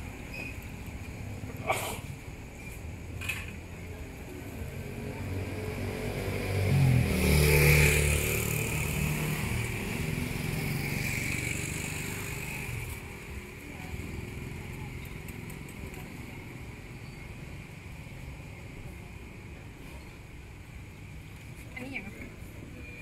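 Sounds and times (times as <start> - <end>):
vehicle passing on street: 3.6 - 19.0.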